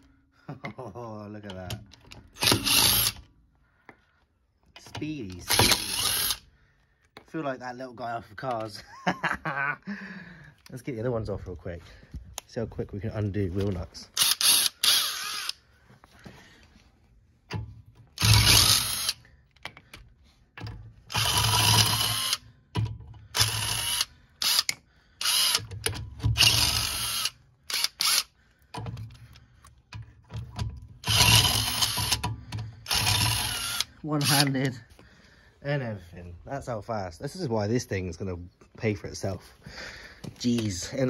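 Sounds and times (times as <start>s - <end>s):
impact wrench hammering: 2.4s - 3.2s, 5.5s - 6.3s, 30.5s - 34.5s.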